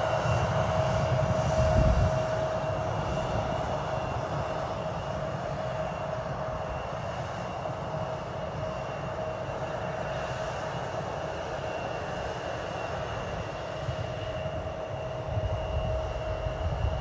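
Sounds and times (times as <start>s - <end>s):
jet engines running: 0.0s - 17.0s.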